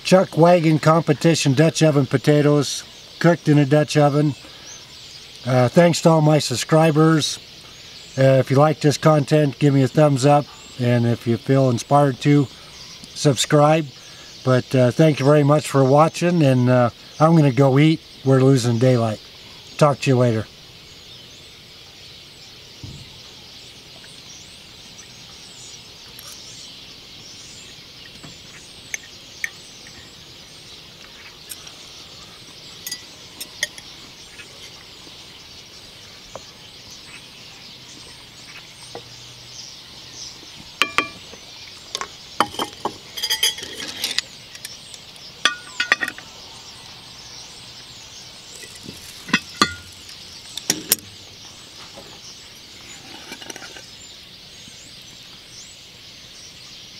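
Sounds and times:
faint bird chirps: 0.0 - 56.9
high outdoor hiss: 0.0 - 56.9
cast-iron cookware clanks: 40.8 - 41.2, 42.4 - 44.2, 45.4 - 46.2, 48.6 - 49.9
sharp ringing knocks: 40.8 - 41.3, 45.5 - 46.2, 49.3 - 49.9.

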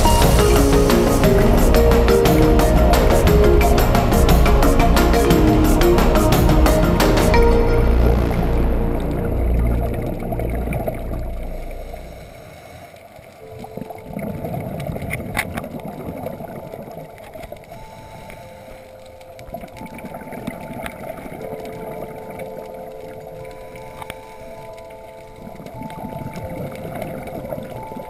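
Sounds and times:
muffled underwater water wash: 0.0 - 28.0
scuba breathing bubbles and clicks: 9.9 - 28.0.

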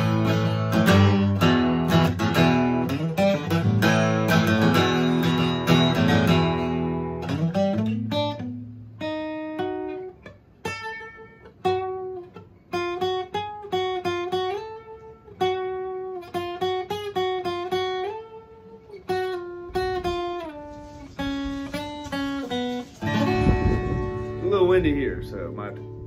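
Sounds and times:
acoustic guitar picked melody: 0.0 - 26.0
acoustic guitar strummed chord: 12.8 - 26.0.

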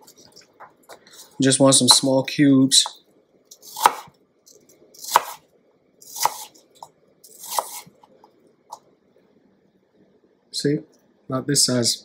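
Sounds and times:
knife chopping on wooden board: 3.6 - 4.1, 5.0 - 5.4, 6.0 - 6.5, 7.3 - 7.9.

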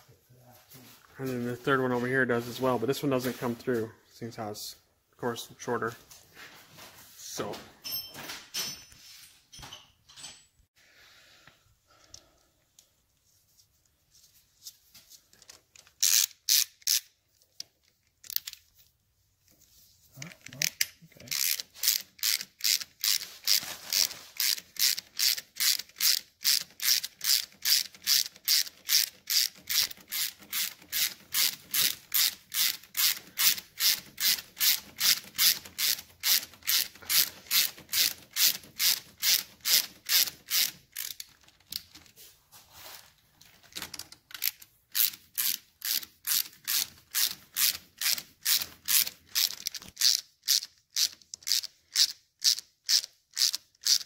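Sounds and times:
ratchet wrench clicking: 16.0 - 17.2, 20.6 - 41.3, 44.3 - 54.0.

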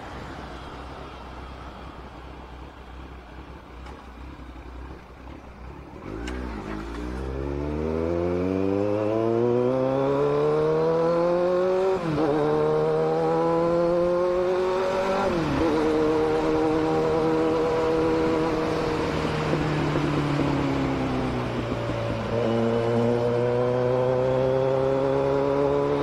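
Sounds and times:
motorcycle engine revving: 3.1 - 26.0.

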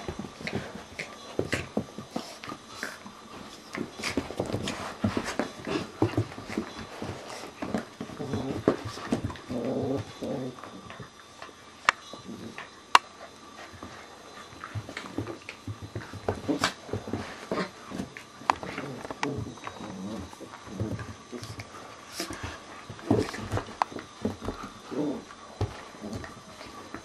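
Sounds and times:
puppies scuffling on carpet: 0.0 - 27.0
puppy growling and whining: 8.0 - 11.0, 18.6 - 21.5, 24.4 - 26.4.

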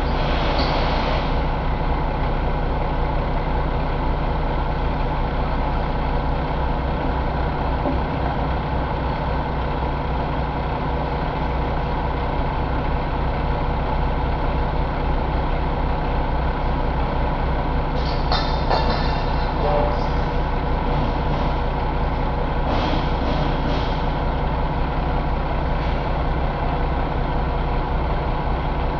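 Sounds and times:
diesel engine idling: 0.0 - 28.9.

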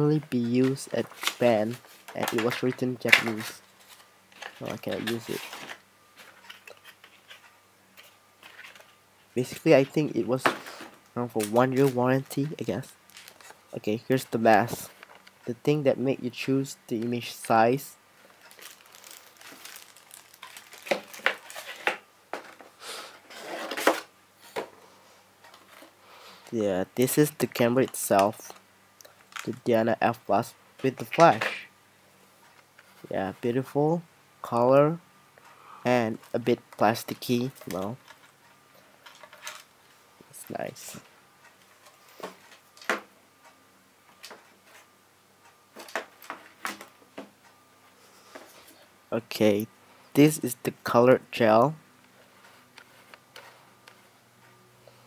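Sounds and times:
plastic wrap crinkling: 12.5 - 13.6, 18.2 - 22.5.

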